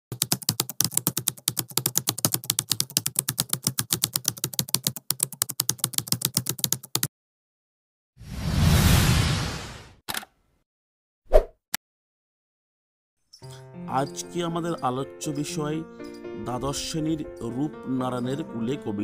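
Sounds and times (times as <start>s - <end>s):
rapid keyboard key clicks: 0.1s - 7.1s.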